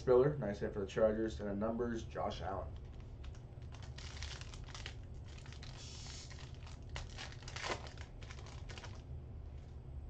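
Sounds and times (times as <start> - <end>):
foil wrapper crinkling and tearing: 2.8 - 9.0.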